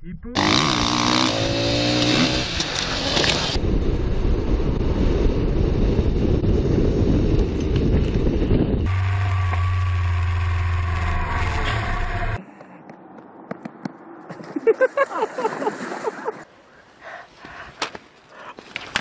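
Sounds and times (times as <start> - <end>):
wind buffeting microphone: 3.5 - 9.0
motorcycle engine running: 8.3 - 12.4.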